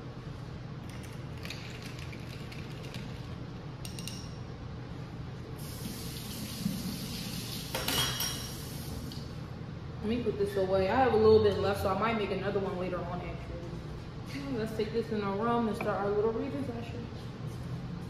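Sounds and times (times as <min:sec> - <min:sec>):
kitchen tap running: 0:05.6 - 0:09.2.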